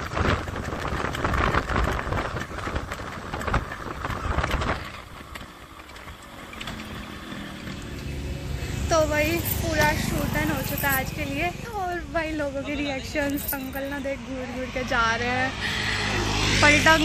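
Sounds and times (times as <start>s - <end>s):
wind buffeting microphone: 0.0s - 7.8s
two-stroke motorcycle engine: 0.0s - 11.8s.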